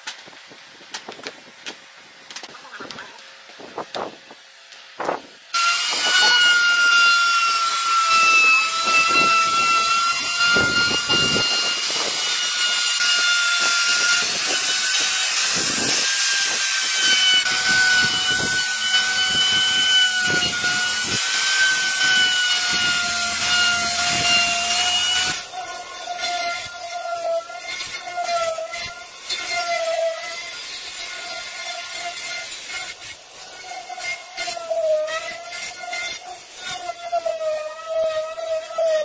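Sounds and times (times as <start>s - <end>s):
power tool cutting wood: 0.6s - 39.0s.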